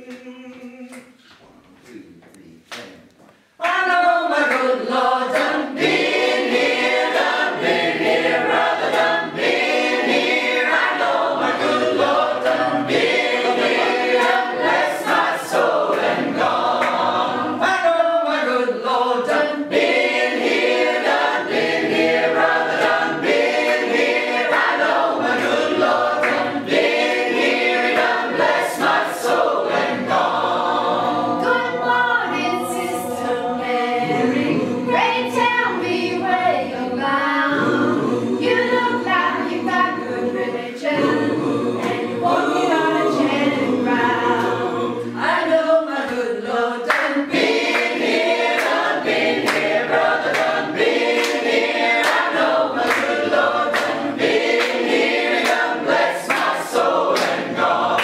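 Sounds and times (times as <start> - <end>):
mixed choir singing a cappella: 3.6 - 58.0.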